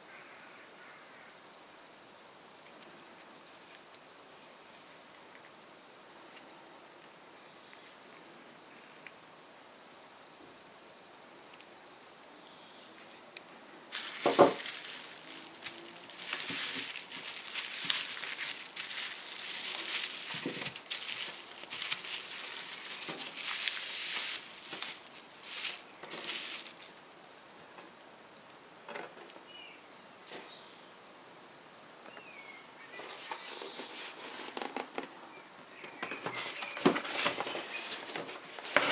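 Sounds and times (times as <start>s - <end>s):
plastic packaging crinkling: 13.9s - 27.2s, 36.4s - 38.9s.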